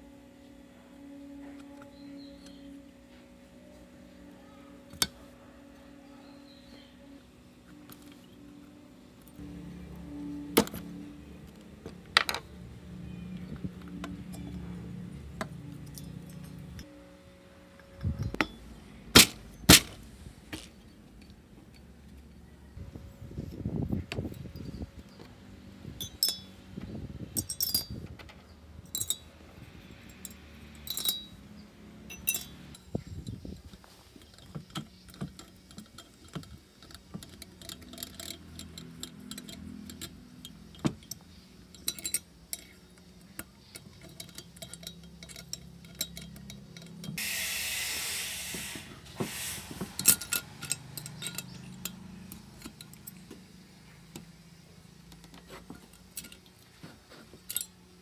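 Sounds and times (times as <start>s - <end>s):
metal tools clinking on metal: 12.2s - 16.9s, 26.0s - 26.7s, 27.3s - 47.2s, 49.7s - 58.0s
hiss: 47.2s - 50.2s.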